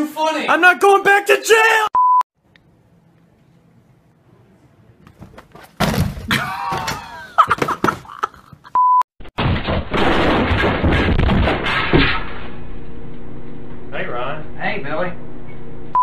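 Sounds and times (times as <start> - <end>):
person falling onto a couch: 5.2 - 8.1
shop display crashing over: 9.4 - 12.6.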